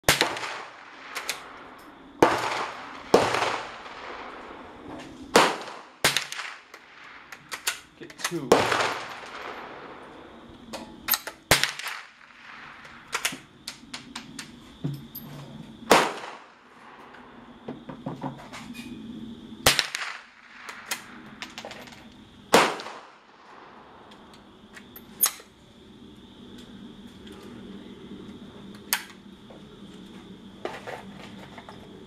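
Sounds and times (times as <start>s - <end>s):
rifle shots cracking: 0.1s - 1.6s, 2.2s - 4.7s, 5.3s - 10.0s, 11.5s - 13.3s, 15.9s - 16.6s, 19.7s - 21.1s, 22.5s - 23.6s.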